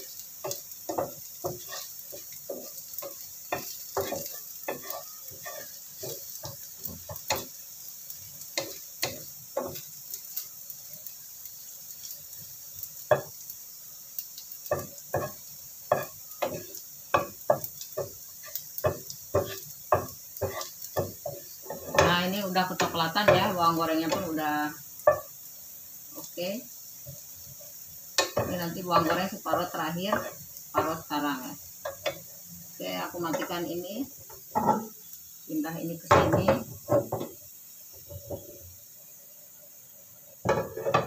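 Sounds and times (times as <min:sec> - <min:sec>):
wooden spatula tapping frying pan: 0:00.0 - 0:07.6, 0:08.4 - 0:11.0, 0:12.9 - 0:13.5, 0:14.2 - 0:24.4, 0:25.0 - 0:25.4, 0:27.0 - 0:32.3, 0:33.2 - 0:33.6, 0:34.2 - 0:34.9, 0:36.0 - 0:38.6, 0:40.4 - 0:41.0
food sizzling in oil: 0:00.0 - 0:41.0.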